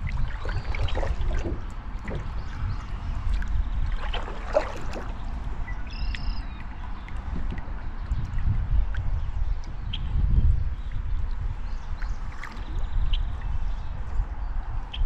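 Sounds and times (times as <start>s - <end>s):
paddle strokes in water: 0.0s - 9.8s
water trickling and gurgling: 0.0s - 14.5s
steady low rumble: 0.0s - 15.0s.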